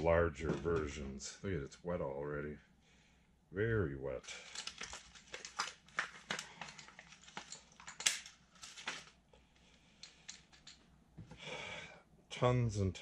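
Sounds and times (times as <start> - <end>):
paper pages rustling: 4.4 - 9.2.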